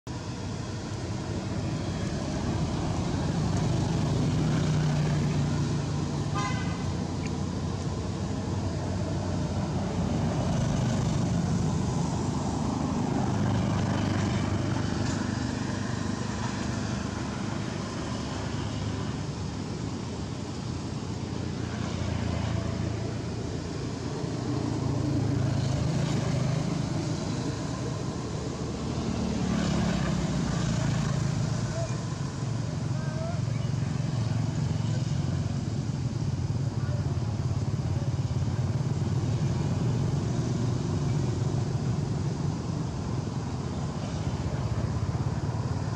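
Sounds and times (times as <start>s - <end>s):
traffic rumble: 0.0s - 45.9s
car horn toot: 6.3s - 6.8s.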